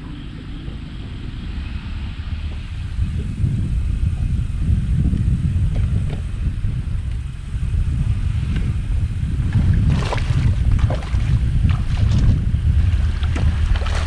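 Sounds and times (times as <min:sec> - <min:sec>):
wind buffeting microphone: 0:00.0 - 0:14.0
fish splashing at water surface: 0:09.8 - 0:12.4, 0:13.2 - 0:14.0.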